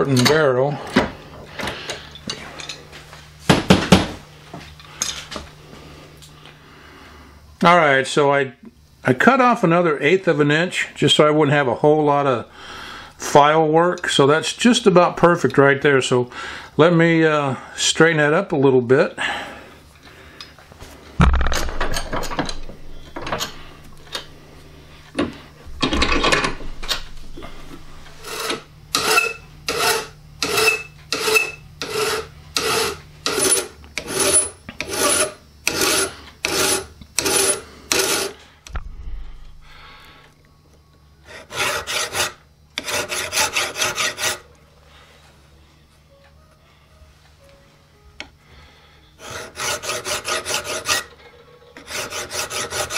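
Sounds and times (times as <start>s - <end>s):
file scraping steel: 28.1s - 38.4s, 41.2s - 44.5s, 49.2s - 52.9s.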